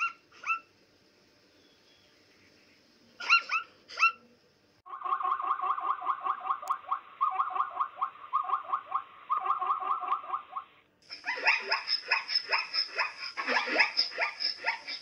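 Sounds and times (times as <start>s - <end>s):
zebra yelping barks: 0.0s - 0.7s, 3.2s - 4.2s, 5.0s - 15.0s.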